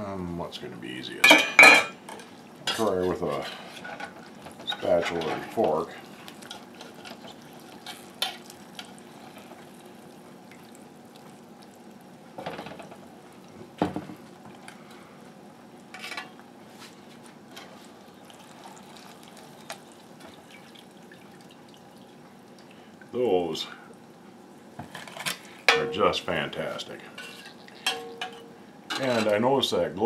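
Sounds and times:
metal utensils scraping a roaster: 27.2s - 29.4s.

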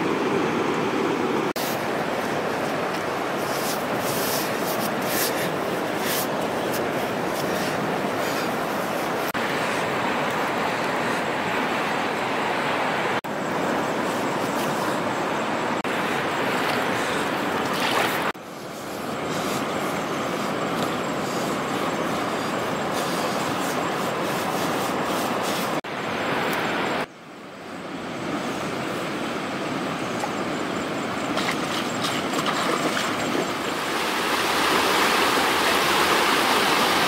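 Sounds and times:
river water rushing: 0.0s - 27.1s, 28.1s - 37.0s.

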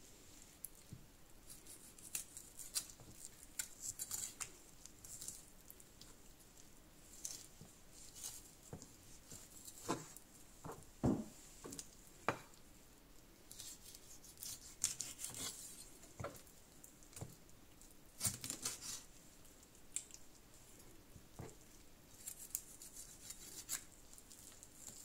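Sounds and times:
knife knocking cutting board: 11.0s - 11.3s.

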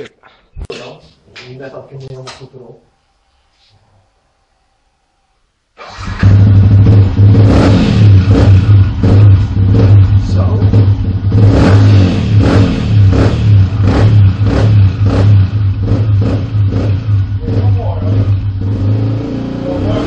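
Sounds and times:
motorcycle engine revving: 5.8s - 20.0s.

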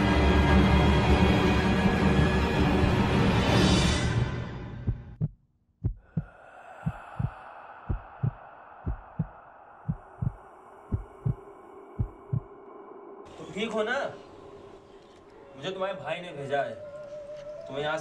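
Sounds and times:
scary film music: 0.0s - 5.2s
heartbeat thumps: 4.8s - 11.4s, 12.0s - 12.5s
faint eerie drone: 6.1s - 17.7s.

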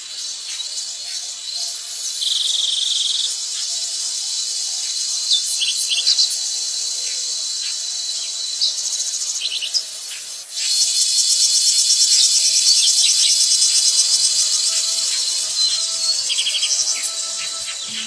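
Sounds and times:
forest insects chorus: 0.0s - 18.0s.

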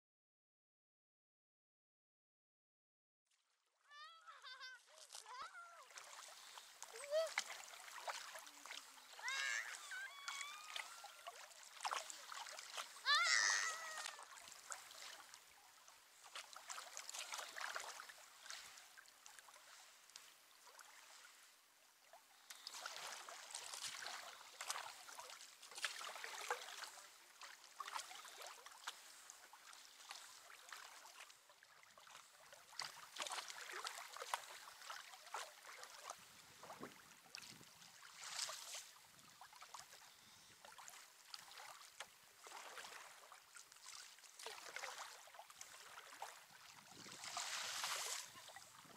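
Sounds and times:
kayak paddle strokes in water: 3.3s - 48.9s.

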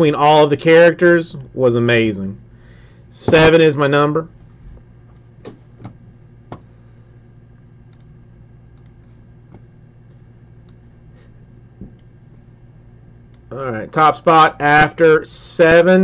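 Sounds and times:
faint low hum: 0.0s - 16.0s
computer mouse clicking: 7.9s - 8.1s, 8.8s - 9.6s.

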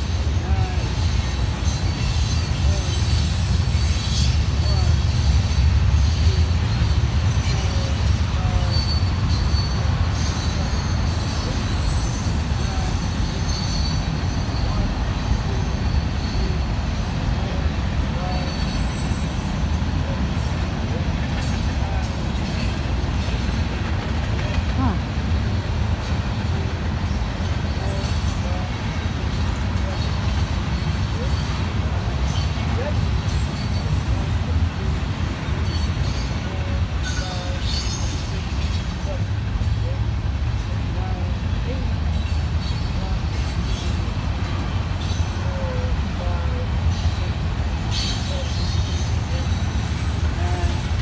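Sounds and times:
high wheel squeal: 0.0s - 20.8s, 35.4s - 38.9s, 46.8s - 51.0s
freight train cars rumbling: 0.0s - 51.0s.

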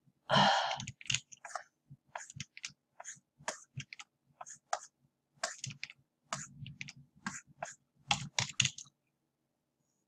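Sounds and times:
keyboard keys clicking: 0.8s - 1.4s, 8.1s - 8.9s.

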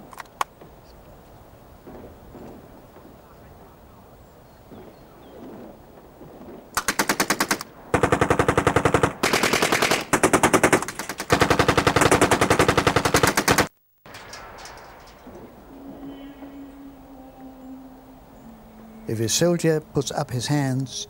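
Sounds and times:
submachine gun firing bursts: 6.8s - 14.2s.

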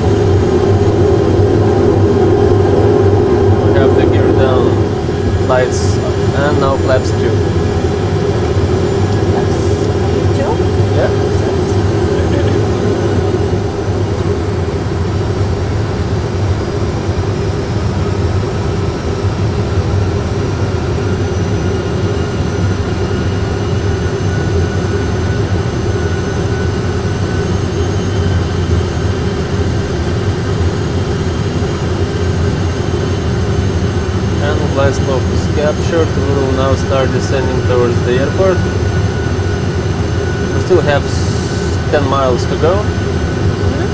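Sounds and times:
cockpit rumble and hiss: 0.0s - 15.8s, 34.3s - 43.9s.

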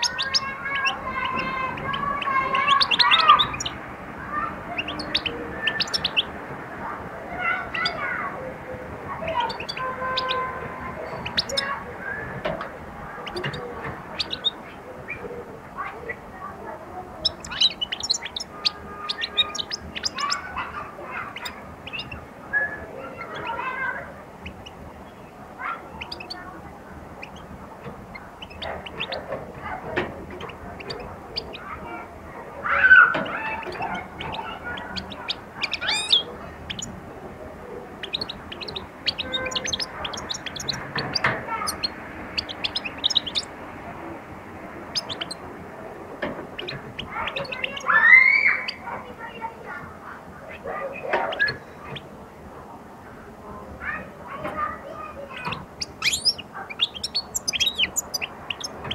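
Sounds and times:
goldfinch twittering: 0.0s - 6.4s, 9.2s - 15.3s, 17.2s - 32.0s, 33.1s - 37.0s, 37.9s - 43.6s, 44.9s - 45.4s, 46.6s - 48.8s, 55.3s - 58.9s.

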